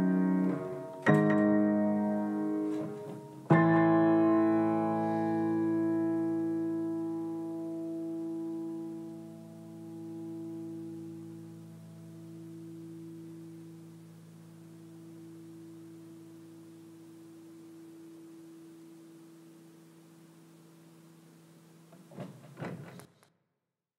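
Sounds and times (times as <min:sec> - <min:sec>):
faint hiss: 0:00.0 - 0:23.3.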